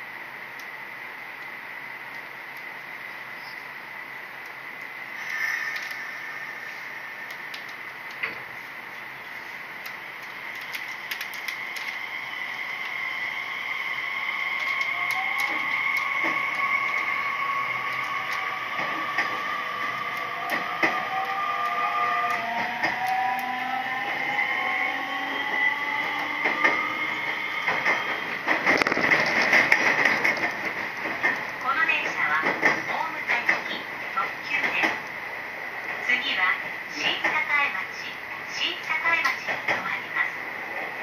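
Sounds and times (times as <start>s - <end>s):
train running noise: 0.0s - 41.0s
electric train motor whine: 0.2s - 31.6s
wheels clicking over rail joints: 27.7s - 33.8s.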